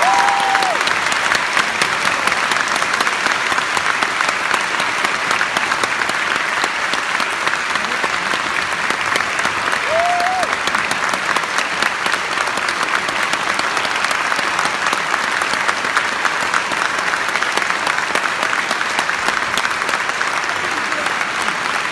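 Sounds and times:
listener cheering: 0:00.0 - 0:00.9, 0:09.8 - 0:10.6
audience applauding: 0:00.0 - 0:21.9.

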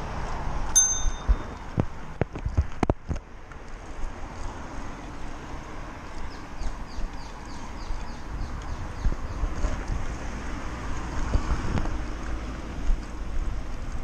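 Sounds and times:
bike rolling on paved path: 0:00.0 - 0:14.0
wind on microphone: 0:07.8 - 0:12.2.

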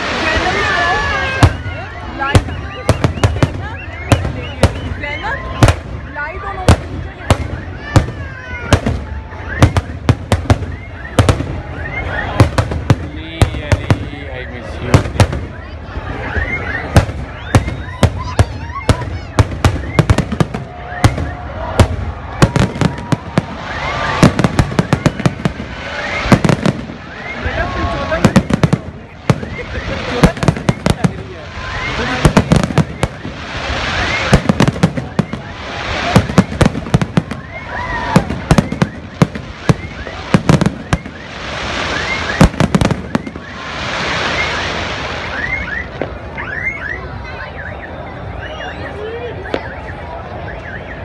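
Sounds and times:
firework hiss: 0:00.0 - 0:01.7, 0:22.5 - 0:45.7.

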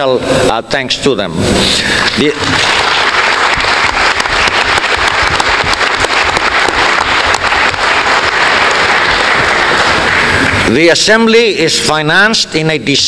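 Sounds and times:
audience applauding: 0:01.9 - 0:11.0.

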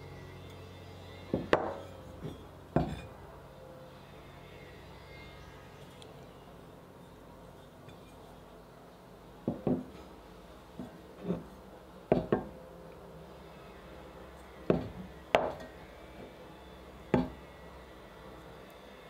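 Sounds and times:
cast-iron cookware clunking on wood: 0:01.3 - 0:03.1, 0:12.1 - 0:12.5, 0:14.7 - 0:15.7.

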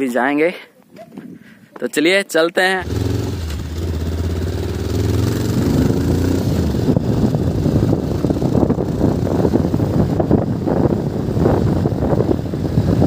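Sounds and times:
motorcycle engine: 0:02.8 - 0:13.0
wind buffeting microphone: 0:02.8 - 0:13.0.

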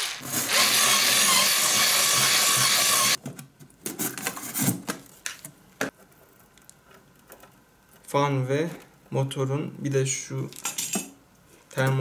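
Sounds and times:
cordless drill boring styrofoam: 0:00.0 - 0:03.2.

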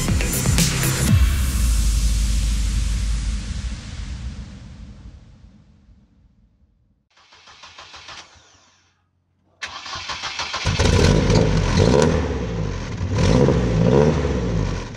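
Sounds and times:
car engine starting and revving: 0:07.2 - 0:08.6, 0:09.6 - 0:14.9.

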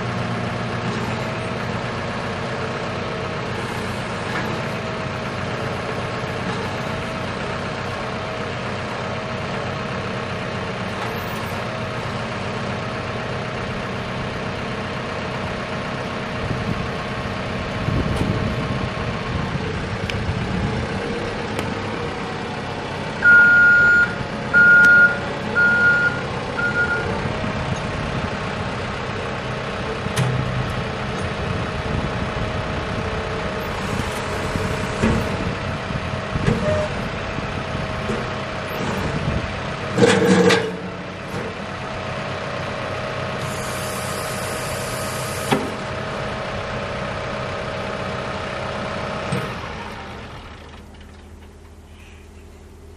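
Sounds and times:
diesel engine idling: 0:00.0 - 0:52.9
hydraulics working: 0:16.3 - 0:51.9
backup alarm beeping: 0:23.2 - 0:27.1
loud clunk: 0:39.9 - 0:41.5.

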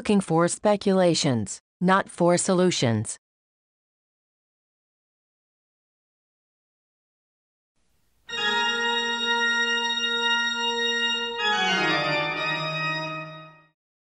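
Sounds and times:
organ-like chord: 0:08.3 - 0:13.8.

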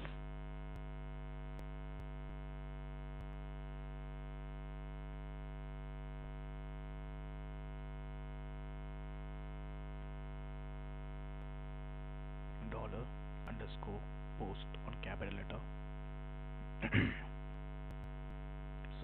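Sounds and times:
mains hum: 0:00.0 - 0:19.0.

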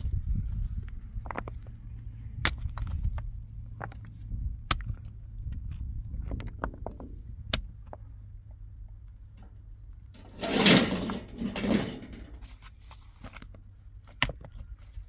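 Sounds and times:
steady low rumble: 0:00.0 - 0:12.5
sharp knocks and clatters: 0:10.2 - 0:12.4.

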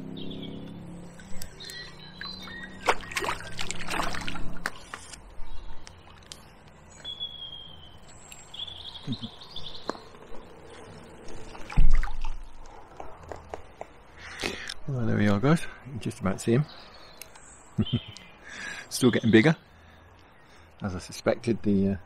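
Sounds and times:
birds whistling: 0:00.0 - 0:11.0, 0:16.7 - 0:20.8.

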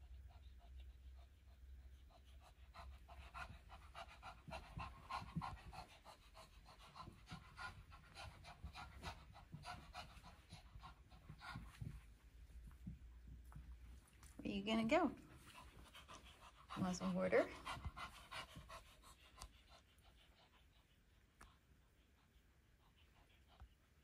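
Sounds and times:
dog panting: 0:00.0 - 0:24.0.

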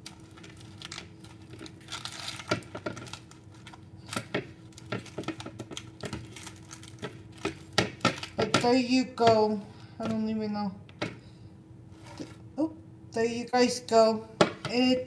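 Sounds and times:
tortilla rustling and crinkling: 0:00.0 - 0:08.8, 0:11.9 - 0:12.5
faint steady hum: 0:00.0 - 0:15.0.

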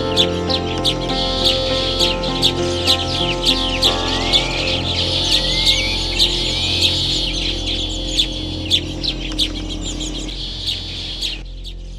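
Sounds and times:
birds chirping rapidly: 0:00.0 - 0:11.9
rising whistled bird note: 0:03.4 - 0:10.3.

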